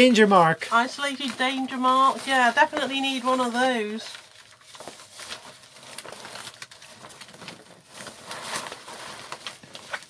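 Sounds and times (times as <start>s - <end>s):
plastic hood rustling and crinkling: 0.1s - 10.0s.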